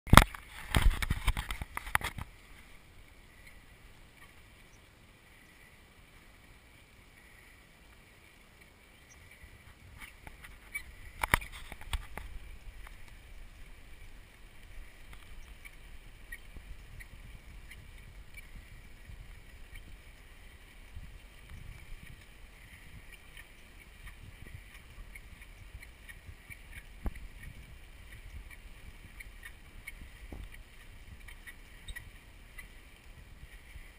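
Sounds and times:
wind rumbling on microphone: 0:00.1 - 0:33.9.

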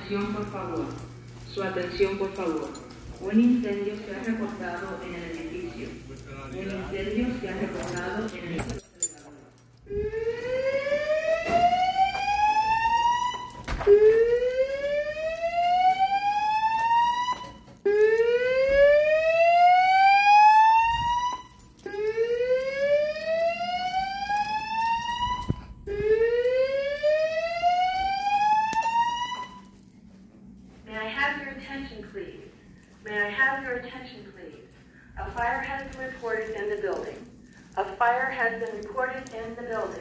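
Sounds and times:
rising whoop alarm tone: 0:09.9 - 0:17.5, 0:18.2 - 0:29.6.

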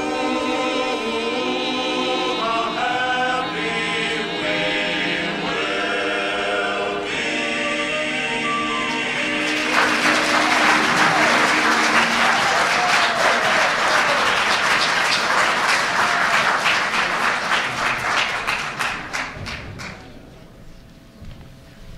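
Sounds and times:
music held chord: 0:00.0 - 0:14.7
audience applauding: 0:09.2 - 0:20.2.

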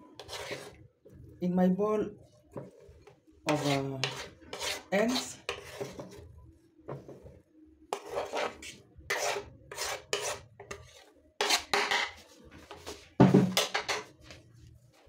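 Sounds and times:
knife scraping wooden board: 0:00.2 - 0:00.8, 0:03.5 - 0:06.2, 0:07.9 - 0:12.2.

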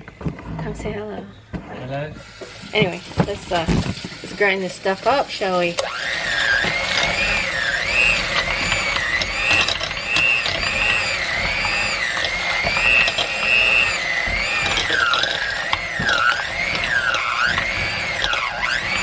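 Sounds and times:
electric hand mixer whining: 0:02.2 - 0:19.0
clicking and rattling: 0:08.2 - 0:19.0.

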